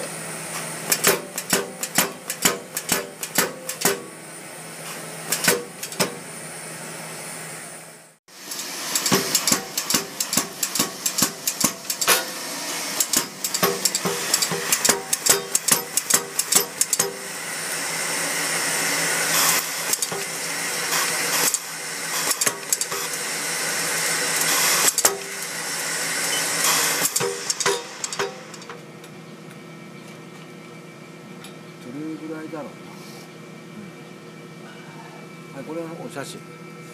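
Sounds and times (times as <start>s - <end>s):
air hammer striking metal: 0.8s - 4.2s, 5.3s - 6.3s, 8.5s - 17.4s, 24.3s - 26.0s, 26.6s - 28.7s
noisy air hiss: 6.2s - 28.6s.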